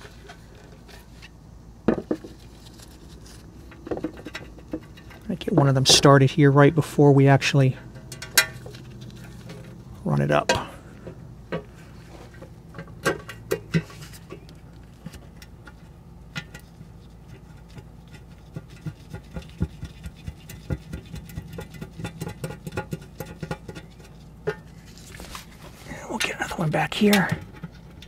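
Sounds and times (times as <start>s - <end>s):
scratchy rubbing: 17.0s - 22.1s.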